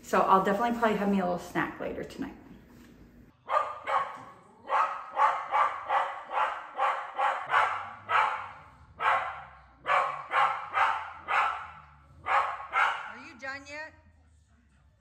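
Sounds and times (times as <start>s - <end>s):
dog barking: 3.4s - 13.4s.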